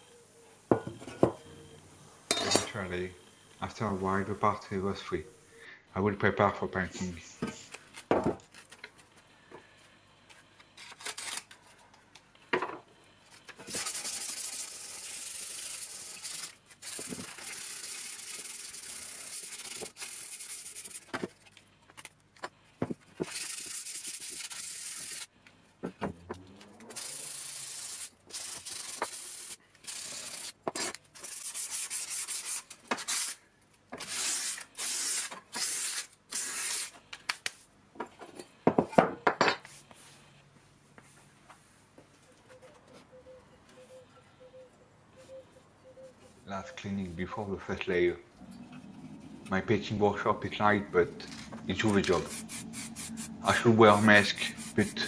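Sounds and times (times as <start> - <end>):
sandpaper rubbing on sheet metal: 13.7 - 21.1, 23.2 - 25.3, 26.9 - 30.6, 31.2 - 33.4, 34.0 - 37.0, 51.8 - 55.0.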